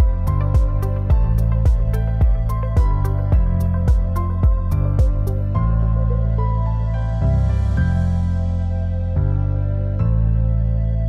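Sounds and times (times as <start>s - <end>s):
background music with quick beat: 0.0s - 5.6s.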